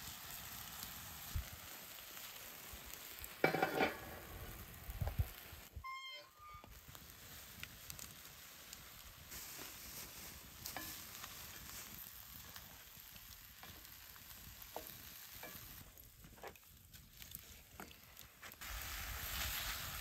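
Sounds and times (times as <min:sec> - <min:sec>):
meat and vegetables sizzling: 0:00.0 - 0:20.0
wooden spatula scraping skillet: 0:03.4 - 0:04.2, 0:09.3 - 0:12.7.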